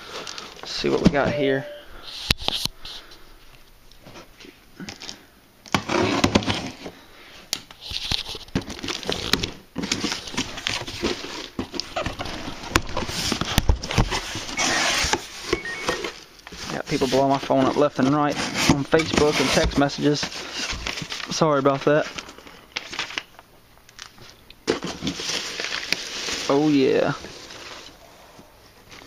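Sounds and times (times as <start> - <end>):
cardboard rustling and tearing: 7.8 - 21.4, 24.7 - 28.0.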